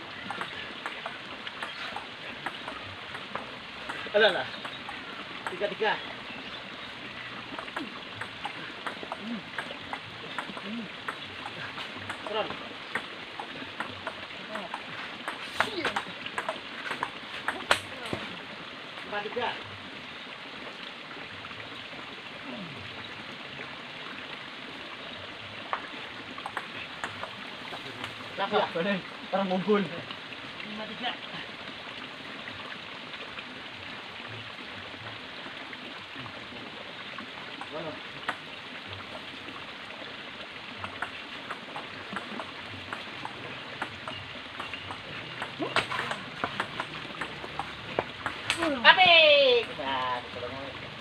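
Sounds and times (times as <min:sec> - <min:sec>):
table tennis ball ticking: 0:02.4 - 0:05.6, 0:07.5 - 0:14.2, 0:15.2 - 0:17.8, 0:26.4 - 0:27.4, 0:40.8 - 0:48.6.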